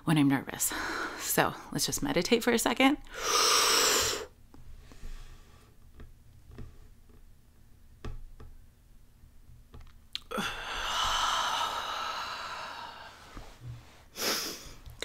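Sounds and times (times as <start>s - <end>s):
person breathy exhale: 10.3s - 14.8s.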